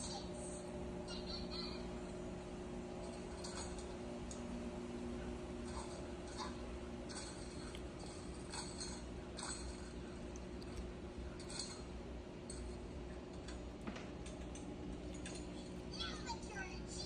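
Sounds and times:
steady low hum: 0.0 - 17.0
toddler eating clicks and smacks: 5.6 - 15.8.

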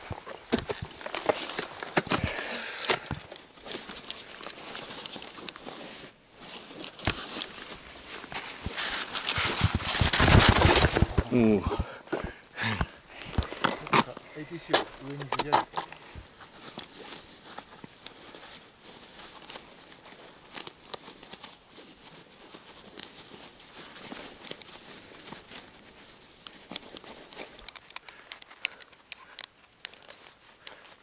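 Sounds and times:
rope and gloves rustling: 0.0 - 31.0
carabiners clicking and rattling: 2.6 - 5.8, 6.4 - 7.8, 23.0 - 30.9.

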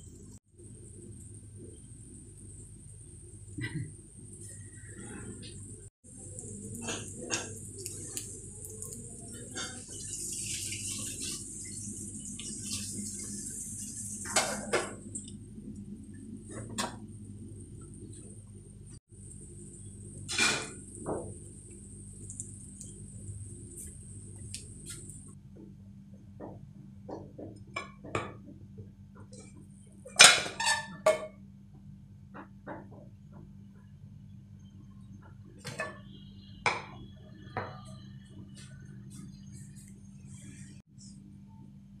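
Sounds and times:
omelette sizzling in pan: 6.1 - 15.2, 19.0 - 25.3.

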